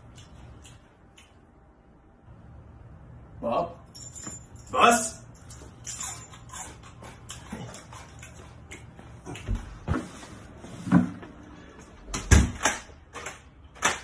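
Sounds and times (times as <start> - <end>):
door shutting with heavy thud: 12.1 - 12.7.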